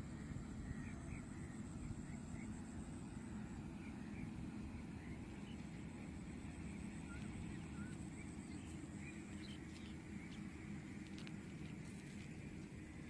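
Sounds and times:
low outdoor rumble over water: 0:00.0 - 0:13.0
faint bird chirps: 0:07.0 - 0:10.4.

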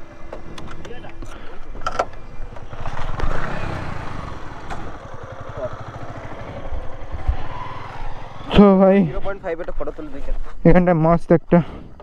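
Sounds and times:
motorcycle engine idling: 0:01.3 - 0:09.0.

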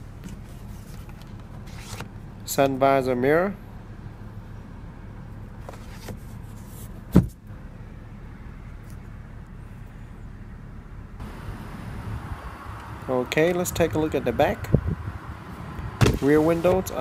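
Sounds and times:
car cabin low hum: 0:03.8 - 0:17.0.

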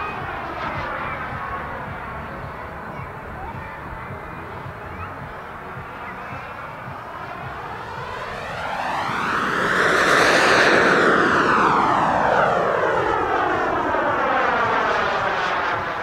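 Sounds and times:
jet turbine flying past: 0:00.0 - 0:16.0.

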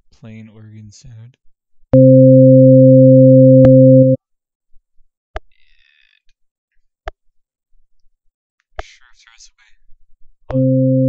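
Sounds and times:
organ-like synthesizer tone: 0:02.0 - 0:04.2, 0:10.5 - 0:11.0.

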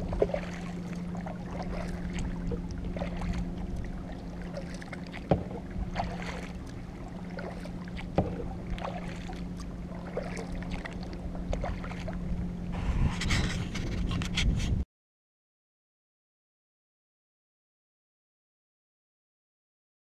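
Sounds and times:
paddle splashing water: 0:00.0 - 0:14.2
steady low hum: 0:00.0 - 0:14.8.

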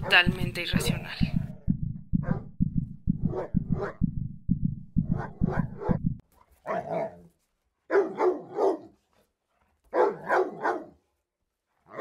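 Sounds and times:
dog barking: 0:03.3 - 0:04.0, 0:06.6 - 0:07.3, 0:07.9 - 0:09.0, 0:09.9 - 0:11.0.

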